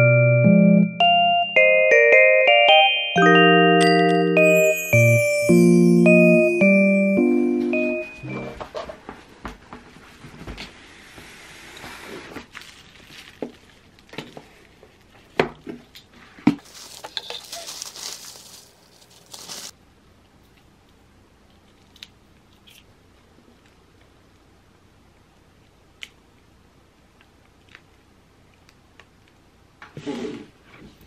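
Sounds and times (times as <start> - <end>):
packaging rustling and crinkling: 12.3 - 15.4, 16.6 - 19.8.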